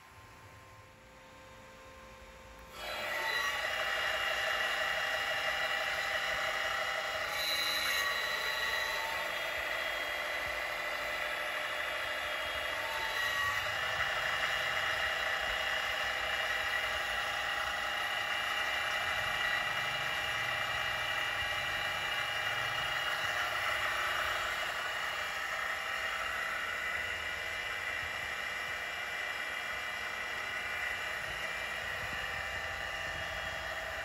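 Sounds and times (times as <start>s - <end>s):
milling machine whine: 0.0s - 34.0s.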